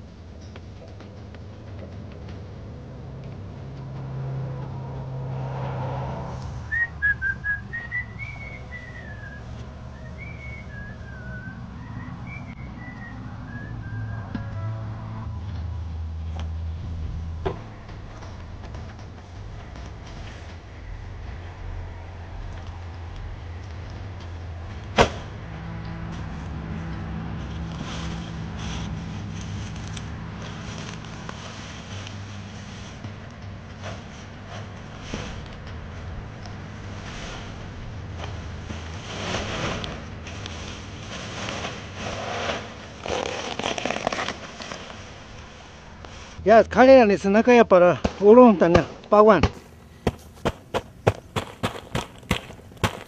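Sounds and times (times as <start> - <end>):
low hum: 0.0 - 42.0, 44.8 - 48.3
vehicle passing: 0.0 - 53.0
person whistling a tune: 6.7 - 14.7.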